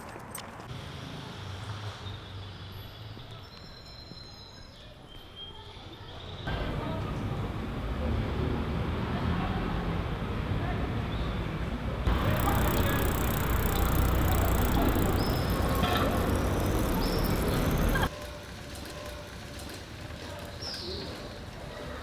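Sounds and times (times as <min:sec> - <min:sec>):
distant traffic hum: 0:06.5 - 0:19.6
bird chirps: 0:12.1 - 0:18.1.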